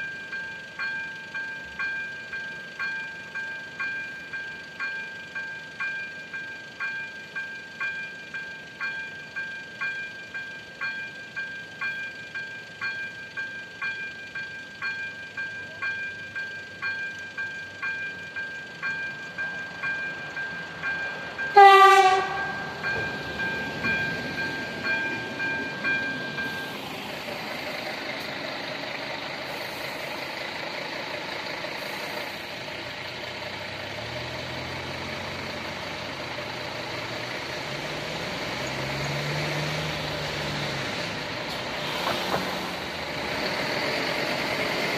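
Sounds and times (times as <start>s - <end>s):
train rumbling past: 0.0s - 44.9s
train horn blast: 21.5s - 22.7s.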